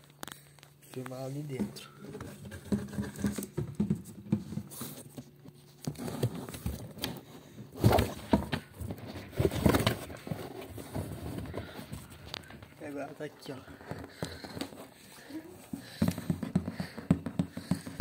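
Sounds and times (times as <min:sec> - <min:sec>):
bumps in cardboard box: 0:05.9 - 0:12.8, 0:13.6 - 0:18.0.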